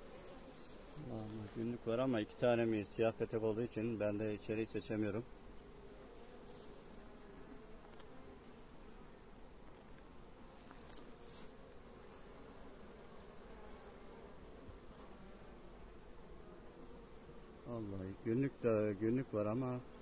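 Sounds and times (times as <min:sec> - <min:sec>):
honeybees buzzing: 0:00.0 - 0:20.0.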